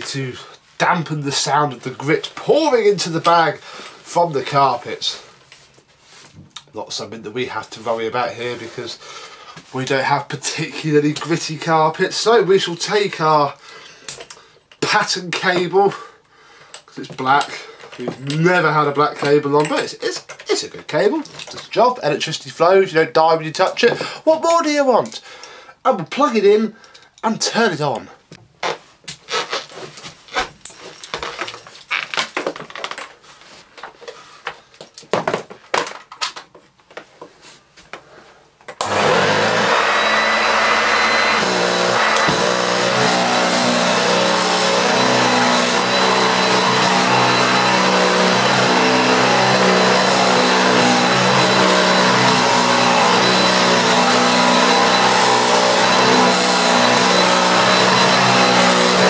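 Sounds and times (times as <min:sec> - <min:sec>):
vacuum cleaner motor whining: 0:38.8 - 0:59.0.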